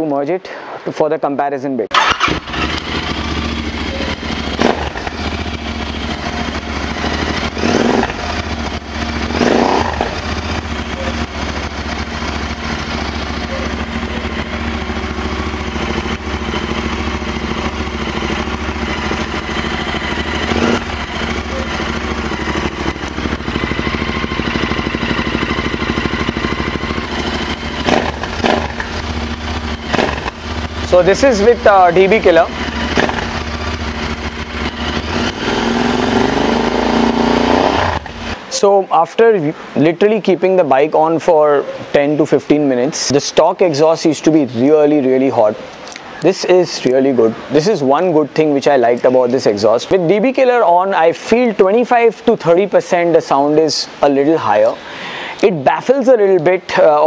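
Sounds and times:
motorcycle engine idling: 0:02.0 - 0:38.5.

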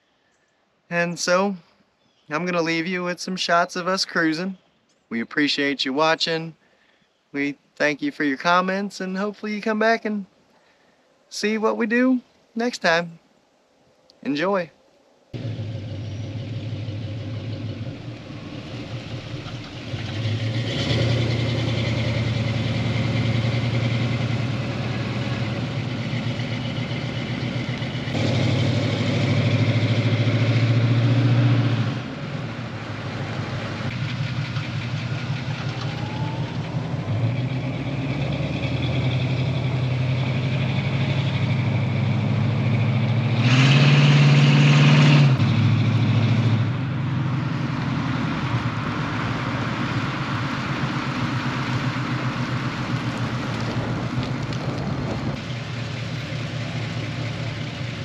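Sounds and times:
car engine running: 0:15.4 - 0:30.4, 0:32.3 - 0:43.3, 0:45.3 - 0:58.0.

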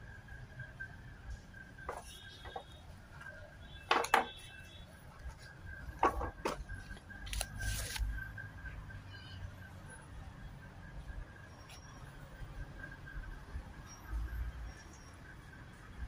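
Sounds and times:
sharp clicks and knocks: 0:03.9 - 0:04.4, 0:06.0 - 0:06.7.

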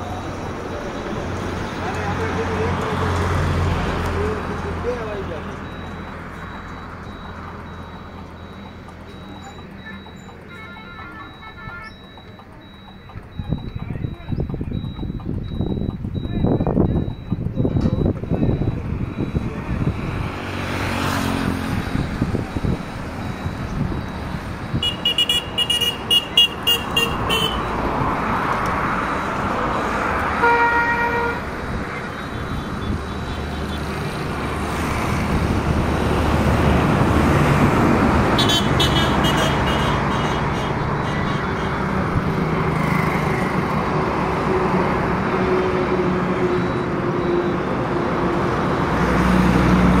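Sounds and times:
vehicle engines running: 0:00.0 - 0:50.0
rapid high-pitched beeping: 0:05.4 - 0:20.5, 0:32.0 - 0:35.2
car horn toot: 0:24.7 - 0:27.8, 0:30.4 - 0:31.5, 0:38.4 - 0:41.8.

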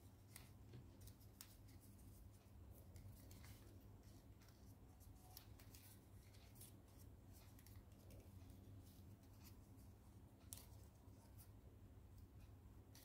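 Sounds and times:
low steady hum: 0:00.0 - 0:13.0
paper crinkling and folding: 0:02.7 - 0:09.6.

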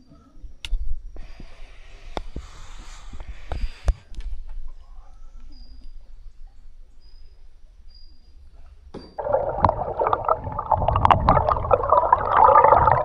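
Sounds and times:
dull knocks underwater: 0:09.2 - 0:13.0
underwater stream rumble: 0:09.2 - 0:13.0.

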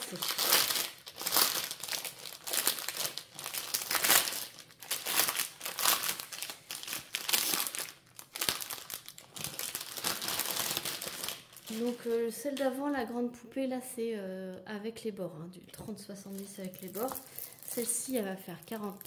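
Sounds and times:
plastic film crinkling: 0:00.0 - 0:12.8, 0:16.2 - 0:19.0.

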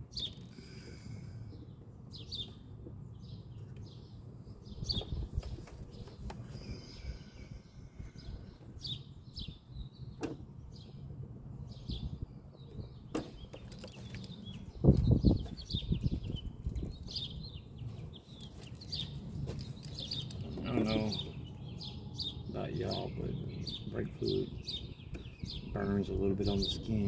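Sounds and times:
birds chirping: 0:00.0 - 0:27.0
low background rumble: 0:00.0 - 0:27.0.

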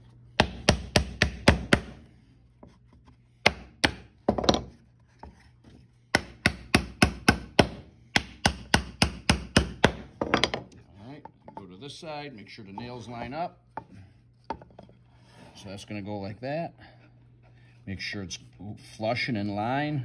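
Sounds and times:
hammer striking nails into wood: 0:00.4 - 0:02.0, 0:03.4 - 0:04.7, 0:06.2 - 0:10.6.

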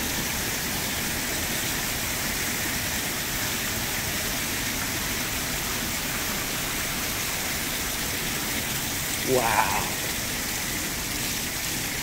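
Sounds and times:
fountain water splashing into pool: 0:00.0 - 0:12.0.

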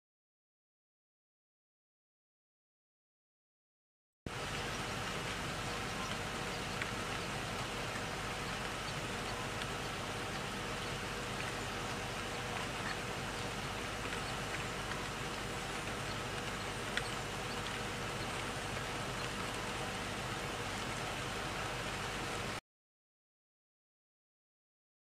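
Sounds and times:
faint constant hum: 0:04.3 - 0:22.6
steady hiss: 0:04.3 - 0:22.6.

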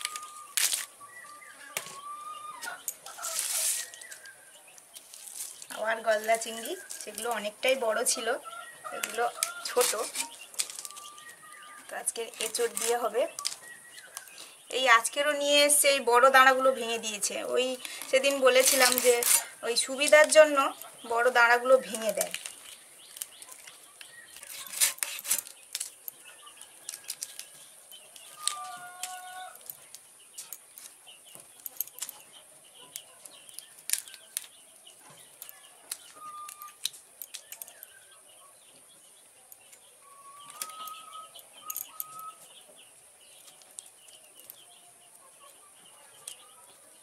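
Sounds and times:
prawn shells clicking and crackling: 0:00.0 - 0:01.9, 0:02.6 - 0:14.6, 0:17.6 - 0:38.1, 0:39.5 - 0:42.5, 0:43.3 - 0:45.2.

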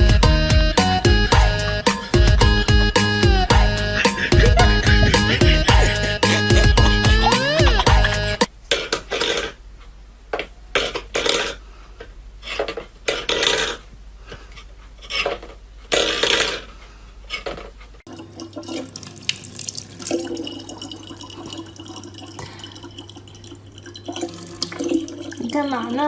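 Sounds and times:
tap water trickling into bottle: 0:18.1 - 0:25.7.

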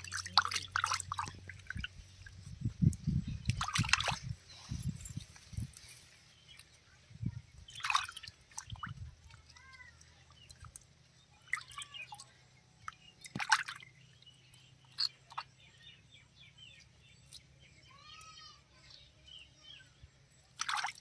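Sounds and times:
water splashing in a basin: 0:00.0 - 0:04.4, 0:07.6 - 0:15.5, 0:20.5 - 0:21.0.

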